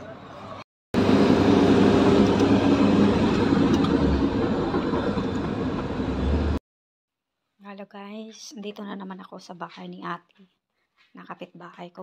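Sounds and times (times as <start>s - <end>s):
minibus engine and road noise: 0.0s - 6.6s.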